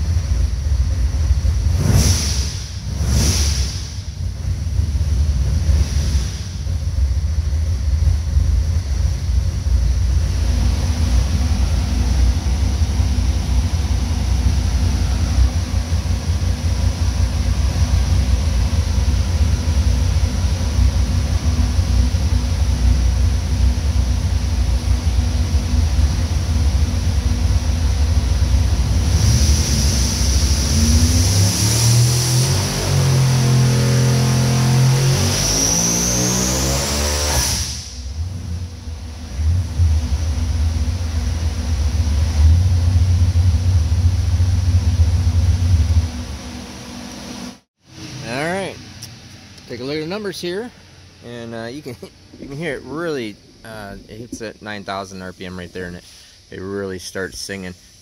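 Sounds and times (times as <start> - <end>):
racing engine revving: 1.6 - 6.7, 25.9 - 38.6.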